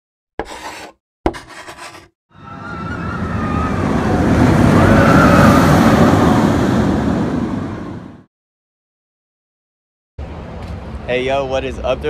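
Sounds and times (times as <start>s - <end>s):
rushing rumble: 2.6s - 8.3s.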